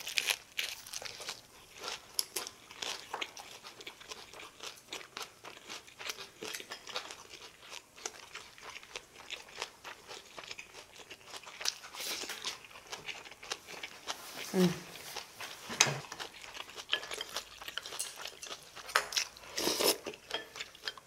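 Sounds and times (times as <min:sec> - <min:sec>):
person chewing crunchy food: 0:00.0 - 0:21.0
wet mouth sounds: 0:19.5 - 0:20.2.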